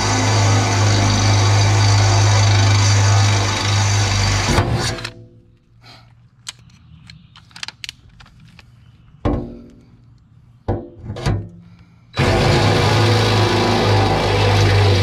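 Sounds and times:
cordless drill spinning: 0:00.0 - 0:05.1.

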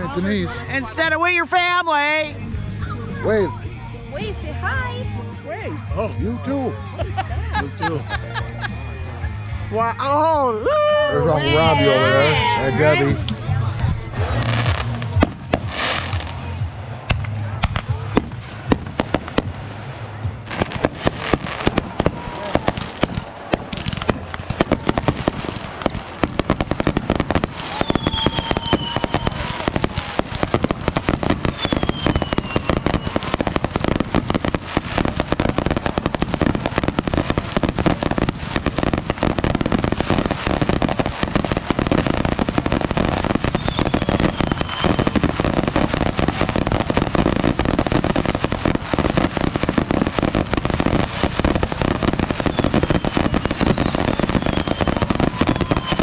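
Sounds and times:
fireworks crackling and popping: 0:00.0 - 0:05.1, 0:06.0 - 0:56.0
firework falling whistles: 0:27.6 - 0:30.0, 0:31.4 - 0:33.5, 0:43.4 - 0:45.3, 0:52.2 - 0:56.0.

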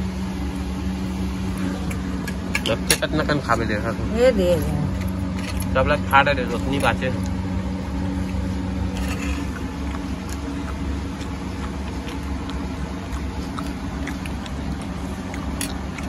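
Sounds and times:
motor humming: 0:00.0 - 0:16.0.

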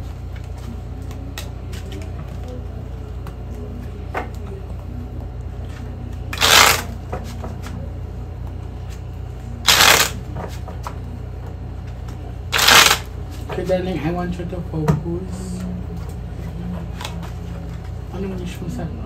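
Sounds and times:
playing cards riffling: 0:05.7 - 0:07.8, 0:09.7 - 0:10.6, 0:12.6 - 0:13.1.

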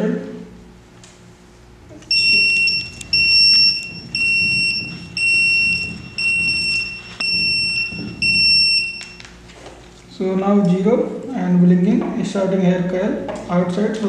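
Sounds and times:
shrill electronic beep: 0:02.1 - 0:09.3.

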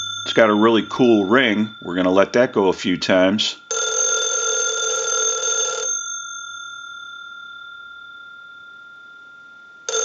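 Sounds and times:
telephone bell ringing: 0:00.0 - 0:02.0, 0:03.7 - 0:10.0.

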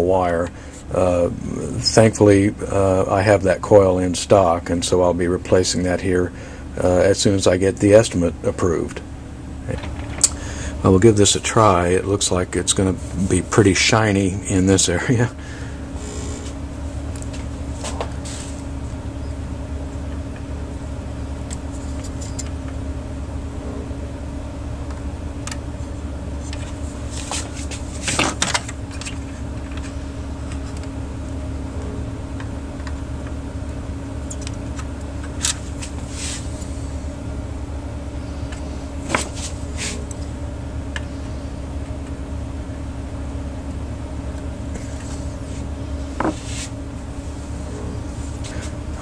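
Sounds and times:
electrical mains hum: 0:00.0 - 0:49.0
hand tools scratching: 0:44.8 - 0:46.8.

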